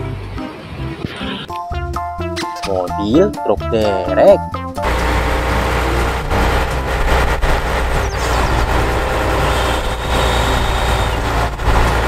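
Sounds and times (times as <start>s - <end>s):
diesel engine rumbling: 0.0s - 12.0s.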